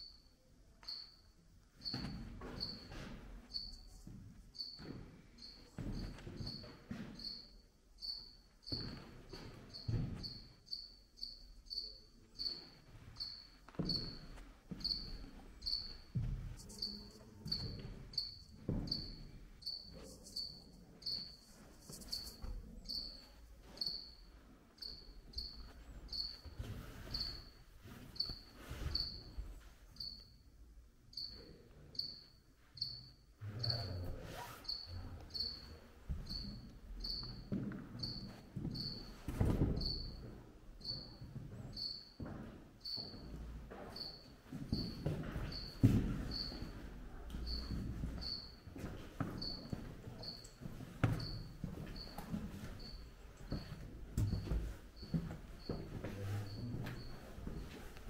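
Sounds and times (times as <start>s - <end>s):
footsteps thudding: 13.7s - 20.4s, 42.2s - 49.8s.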